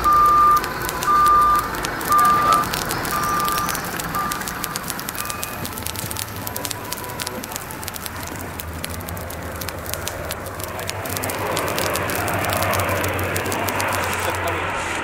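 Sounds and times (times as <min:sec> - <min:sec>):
fire crackling: 0:00.0 - 0:15.0
propeller plane engines droning: 0:09.4 - 0:15.0.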